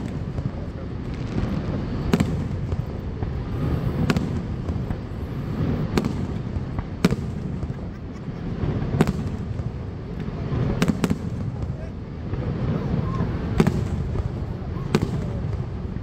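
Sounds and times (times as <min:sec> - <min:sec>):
fireworks bursting with sharp bangs: 0:00.0 - 0:16.0
steady low rumble: 0:00.0 - 0:16.0.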